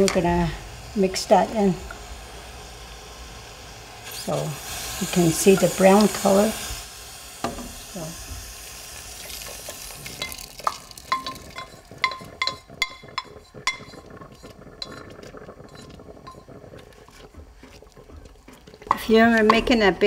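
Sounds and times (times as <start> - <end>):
wooden sticks scraping saucepan: 4.1 - 6.6, 9.1 - 20.0
stirring batter: 4.2 - 6.5, 9.0 - 20.0.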